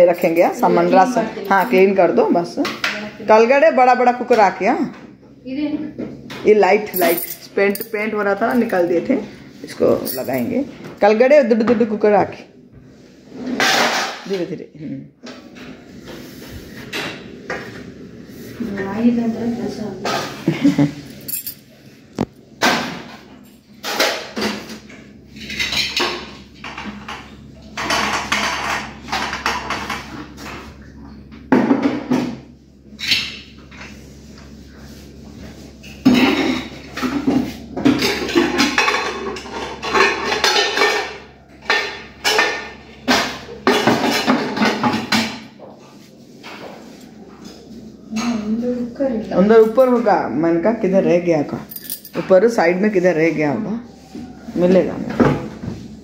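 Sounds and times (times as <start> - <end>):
metal pots clanking: 36.0 - 45.3.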